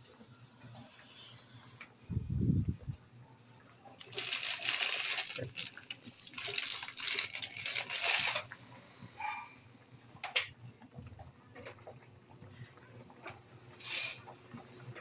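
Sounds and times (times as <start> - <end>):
plastic packaging crinkling: 4.0 - 8.5.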